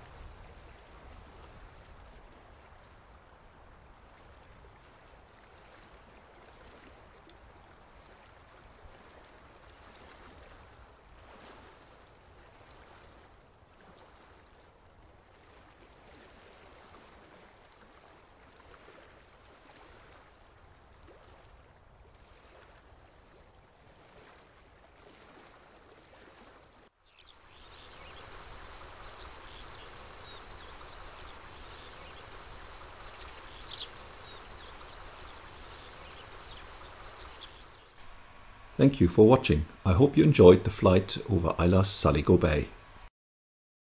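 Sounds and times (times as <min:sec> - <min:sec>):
birds chirping: 0:27.1 - 0:42.8
running water: 0:27.3 - 0:43.1.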